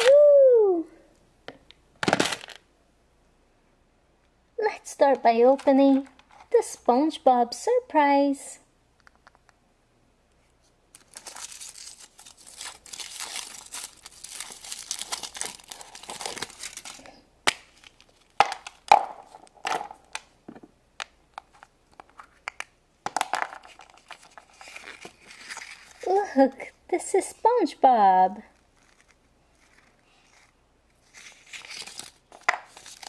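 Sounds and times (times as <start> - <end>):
foil wrapper crinkling and tearing: 2.0 - 2.6, 10.9 - 17.1, 23.7 - 26.1, 28.7 - 33.0.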